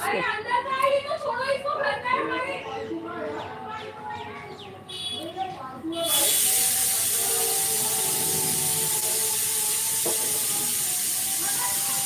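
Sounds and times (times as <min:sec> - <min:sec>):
pressure cooker whistle hissing: 0:06.0 - 0:12.0.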